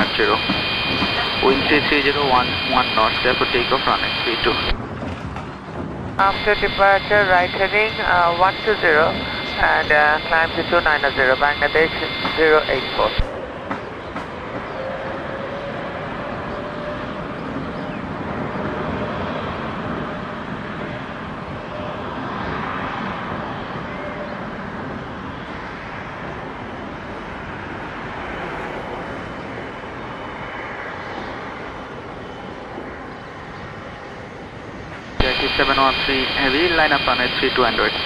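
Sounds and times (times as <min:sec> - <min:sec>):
faint steady tone: 0:00.0 - 0:04.8, 0:06.2 - 0:13.2, 0:35.2 - 0:38.0
jet engines at takeoff thrust: 0:00.0 - 0:38.0.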